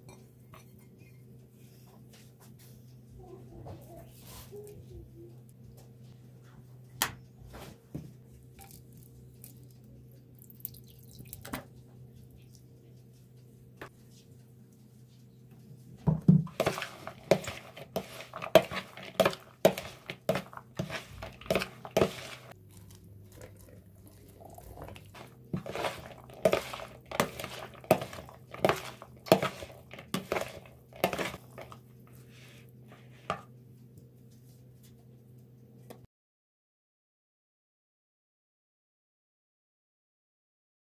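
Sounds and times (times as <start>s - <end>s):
low steady hum: 0.0s - 36.0s
spoon knocking and scraping: 16.1s - 31.8s.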